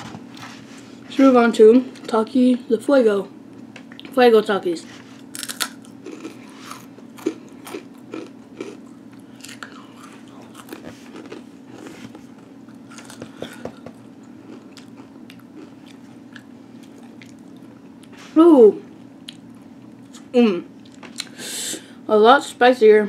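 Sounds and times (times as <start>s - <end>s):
faint low hum: 0.0s - 23.0s
person crunching tortilla chips: 5.3s - 17.7s.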